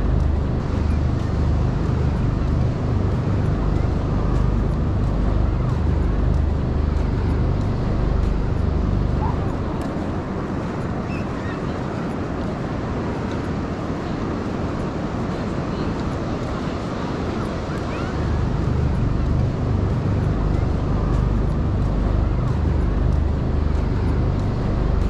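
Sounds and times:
faint voices: 0:00.0 - 0:25.0
ocean surf: 0:00.0 - 0:25.0
wind rumble on microphone: 0:00.0 - 0:25.0.

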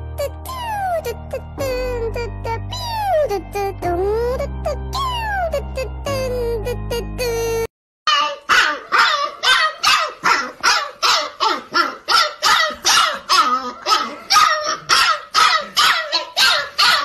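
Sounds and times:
puppy yipping: 0:08.1 - 0:17.0.

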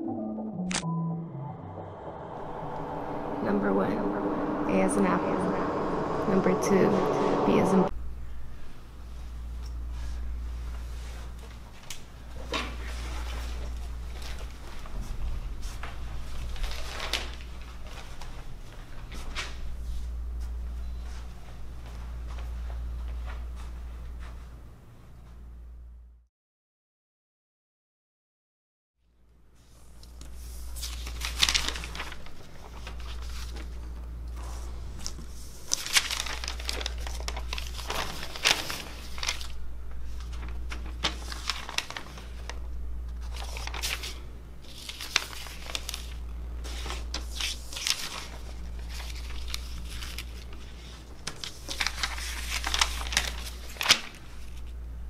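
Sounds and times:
steady low hum: 0:00.0 - 0:26.2, 0:29.2 - 0:55.0
paper rustling and crinkling: 0:10.0 - 0:20.1, 0:29.8 - 0:54.8.

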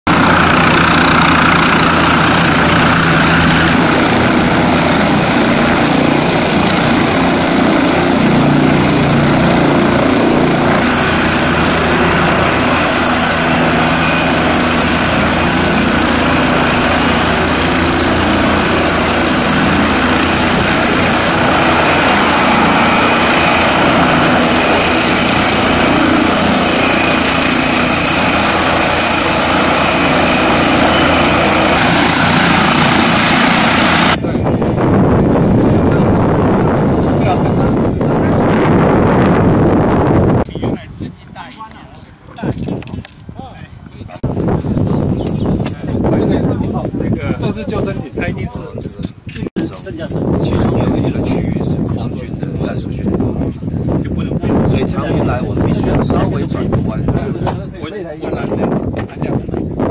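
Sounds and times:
helicopter rotor and turbine noise: 0:00.1 - 0:59.9.

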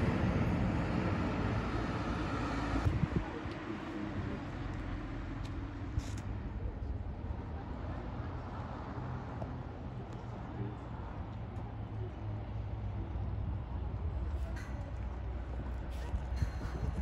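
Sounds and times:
bus diesel engine humming: 0:00.0 - 0:17.0.

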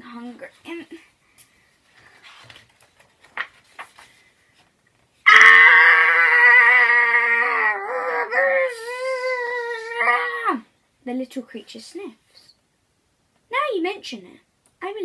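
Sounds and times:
page turning rustles: 0:01.8 - 0:05.1
girl making long growling noise: 0:05.3 - 0:10.6.

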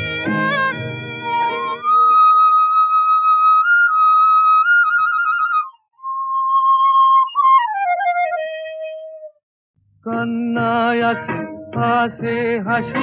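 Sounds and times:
solo flute playing: 0:00.0 - 0:09.4.

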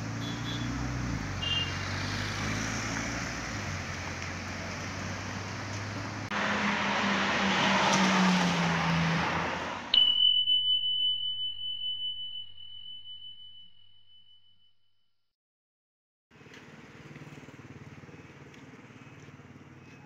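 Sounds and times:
road traffic: 0:00.0 - 0:10.0, 0:16.3 - 0:20.0.

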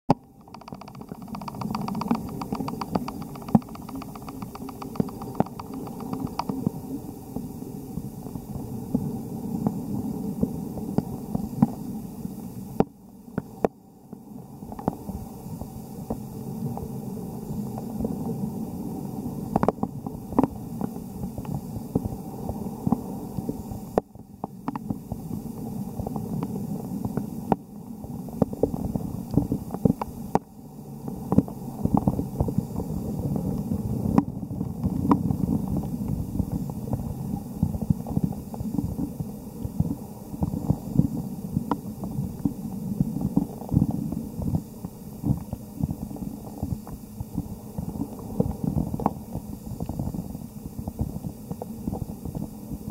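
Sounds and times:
sharp clicks and ticks: 0:00.1 - 0:06.7
muffled underwater rumble: 0:00.1 - 0:52.9.

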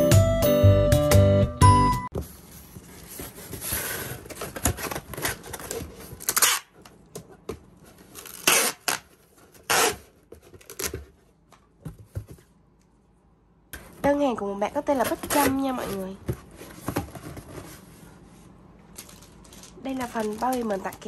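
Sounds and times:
cardboard rustling: 0:02.1 - 0:12.7, 0:13.8 - 0:21.0
packing tape ripping off dispenser: 0:05.1 - 0:06.8, 0:08.1 - 0:11.0.

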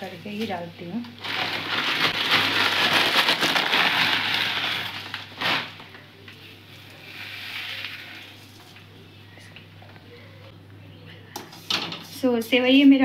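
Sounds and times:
dry noodles crackling and snapping: 0:01.0 - 0:07.0.

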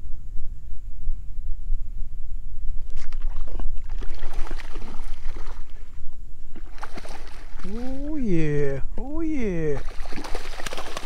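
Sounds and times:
steady low rumble: 0:00.0 - 0:06.6
water splashing at a kayak: 0:03.0 - 0:05.9, 0:06.5 - 0:08.7, 0:09.4 - 0:11.0.

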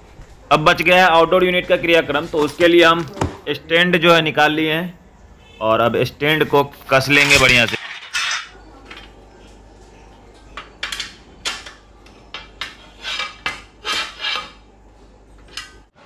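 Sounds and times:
metal tools clinking on steel brackets: 0:07.2 - 0:09.1.

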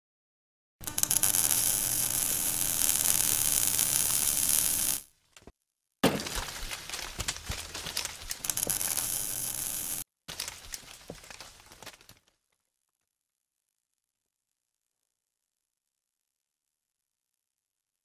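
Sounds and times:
crackling and clinking: 0:00.8 - 0:05.0, 0:06.0 - 0:12.4
dense crackling hiss: 0:00.8 - 0:05.0, 0:06.9 - 0:12.0.

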